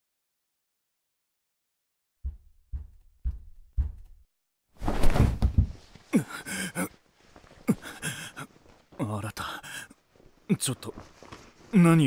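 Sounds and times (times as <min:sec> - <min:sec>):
soft footsteps: 0:02.3 - 0:04.2
heavy thud with rustle: 0:04.8 - 0:05.8
man's breathy vocal sounds: 0:07.6 - 0:08.5.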